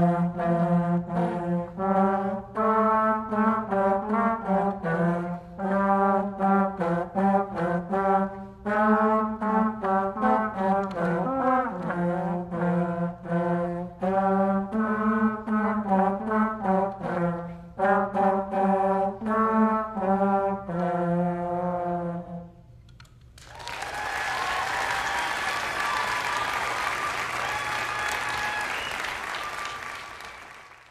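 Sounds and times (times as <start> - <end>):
brass ensemble playing: 0.0 - 22.6
audience applause: 23.4 - 30.9.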